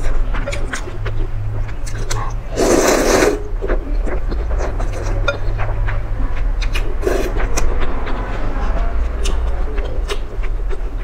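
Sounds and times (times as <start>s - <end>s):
wet chewing: 0.0s - 11.0s
person slurping noodles: 1.9s - 3.7s, 6.8s - 7.4s.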